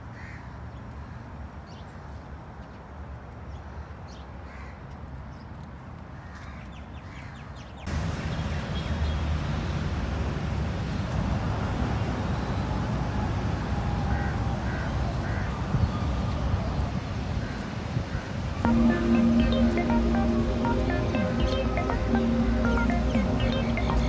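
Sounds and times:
low steady outdoor noise: 0.0 - 24.0
crows cawing: 0.2 - 0.5, 14.1 - 15.6
loud rumbling noise: 7.9 - 12.0.

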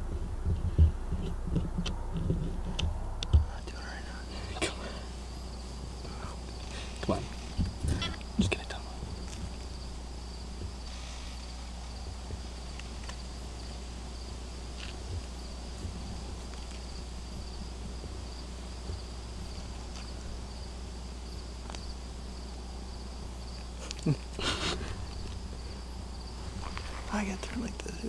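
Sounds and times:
crickets trilling: 0.0 - 28.0
low steady rumble: 0.0 - 28.0
faint ticks: 14.7 - 20.5, 23.2 - 27.6.

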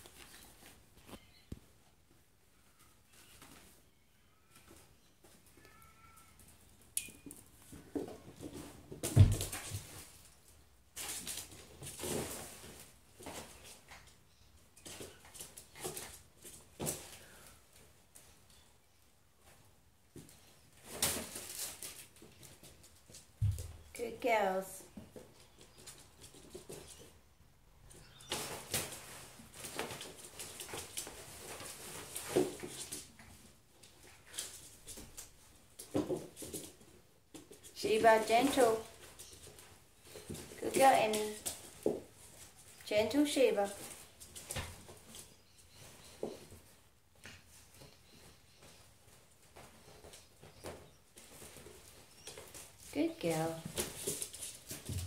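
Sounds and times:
paws scrabbling on wooden floor: 24.8 - 27.3, 27.9 - 52.9, 53.5 - 55.0.

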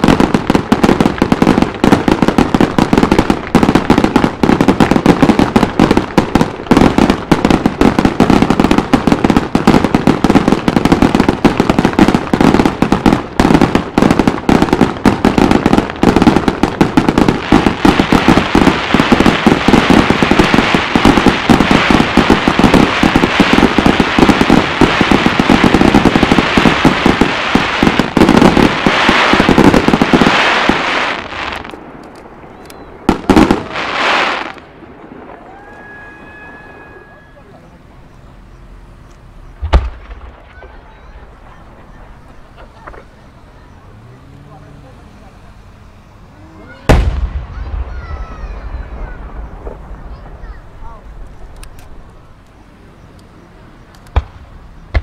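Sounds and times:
firework hiss: 0.0 - 55.0
fireworks bangs and crackling: 0.0 - 55.0.

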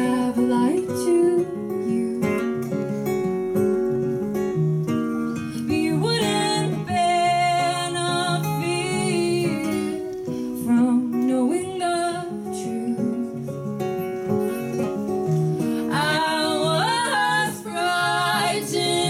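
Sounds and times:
woman singing: 0.0 - 2.6, 5.5 - 13.6, 15.7 - 19.0
acoustic guitar strumming: 0.0 - 19.0.

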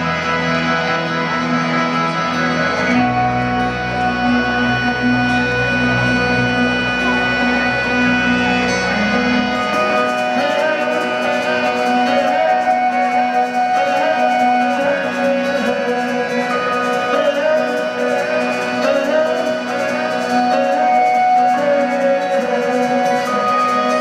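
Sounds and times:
deep bass note: 0.0 - 10.4
electric and acoustic guitars: 0.0 - 24.0
sustained steady tones: 0.0 - 24.0.

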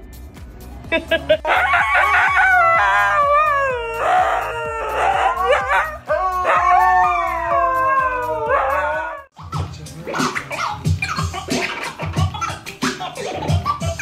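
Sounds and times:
dogs howling: 1.4 - 9.3.

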